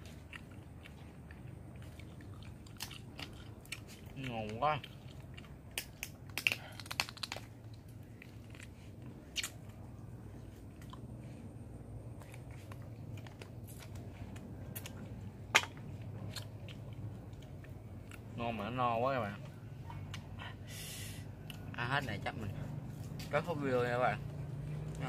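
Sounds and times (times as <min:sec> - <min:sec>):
person chewing and crunching: 0:00.0 - 0:18.6.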